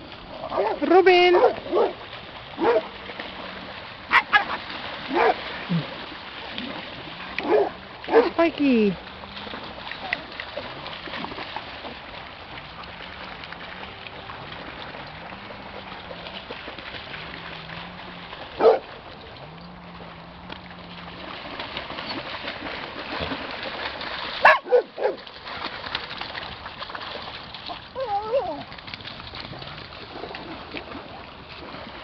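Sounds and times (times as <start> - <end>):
wind: 0.0 - 32.0
dogs barking: 0.5 - 2.0, 2.6 - 2.9, 4.1 - 5.4, 7.4 - 8.4, 18.6 - 18.8, 24.4 - 25.2.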